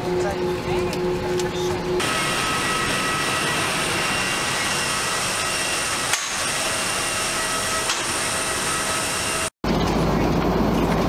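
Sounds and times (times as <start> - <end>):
high whine tones: 0.0 - 9.5
jet airliner rushing hiss: 2.0 - 9.5.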